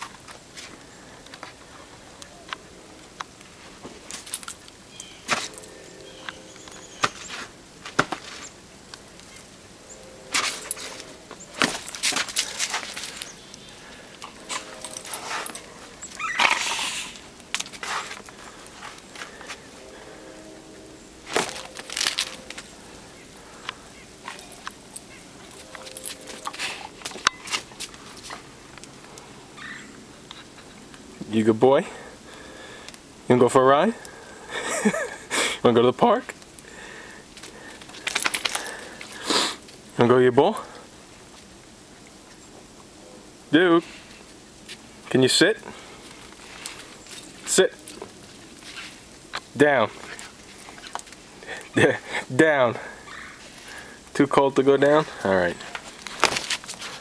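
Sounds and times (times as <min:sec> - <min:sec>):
footsteps crunching on snow: 0:05.0 - 0:08.6, 0:09.3 - 0:20.5, 0:21.2 - 0:28.6, 0:54.9 - 0:57.0
dog scuffling in snow: 0:17.7 - 0:18.2.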